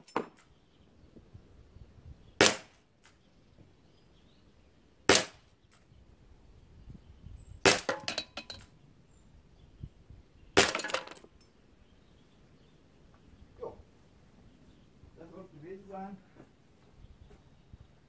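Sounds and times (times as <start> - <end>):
air revolver shots: 2.4 - 2.8, 5.1 - 5.4, 7.6 - 8.2, 10.6 - 11.0.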